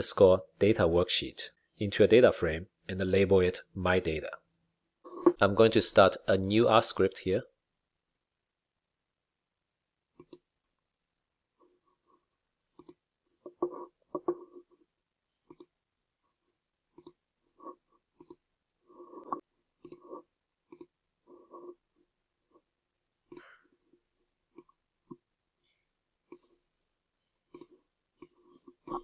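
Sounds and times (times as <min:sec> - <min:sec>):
computer mouse clicking: 0:10.2 - 0:10.5, 0:12.7 - 0:14.4, 0:15.4 - 0:15.7, 0:16.9 - 0:17.2, 0:18.1 - 0:18.4, 0:19.3 - 0:21.0, 0:23.3 - 0:23.5, 0:26.3 - 0:26.5, 0:27.5 - 0:29.0.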